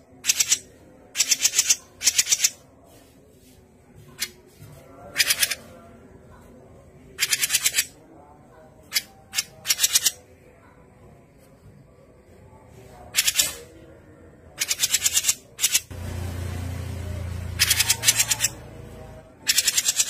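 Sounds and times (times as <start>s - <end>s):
bird harsh rapid chattering: 0.2s - 0.6s, 1.2s - 2.6s, 7.2s - 7.9s, 14.6s - 15.9s, 17.6s - 18.6s, 19.4s - 20.0s.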